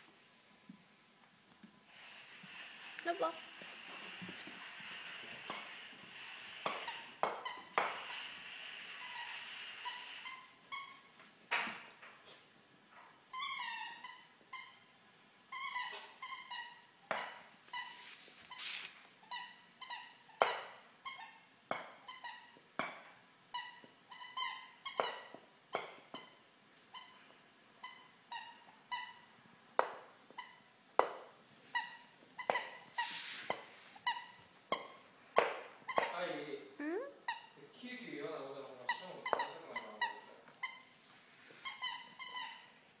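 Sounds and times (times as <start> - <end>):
toy squeaker squeaking: 23.5 - 27.2, 35.9 - 36.2, 36.8 - 37.6, 38.8 - 40.9, 41.6 - 42.8.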